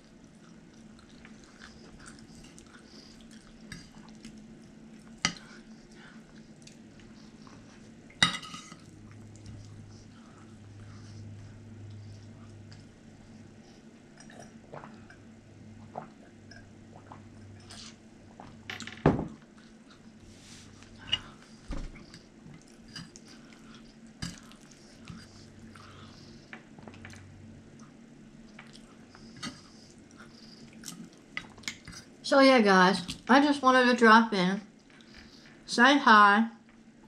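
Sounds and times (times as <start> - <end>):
chewing: 0.0 - 15.2, 19.5 - 32.1.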